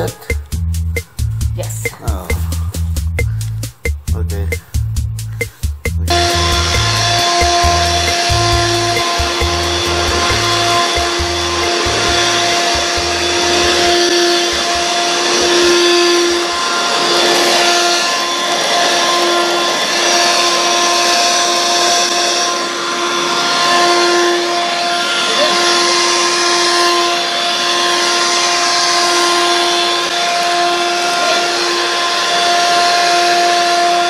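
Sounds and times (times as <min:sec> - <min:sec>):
stick vacuum running on carpet: 0:06.1 - 0:34.0.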